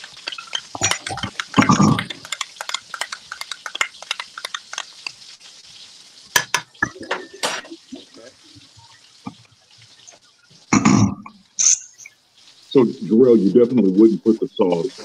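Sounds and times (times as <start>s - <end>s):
spoon scraping in measuring cup: 0.0s - 5.2s
utensil knocking on pan: 0.0s - 5.2s, 6.4s - 7.6s
utensil clatter: 0.0s - 5.3s.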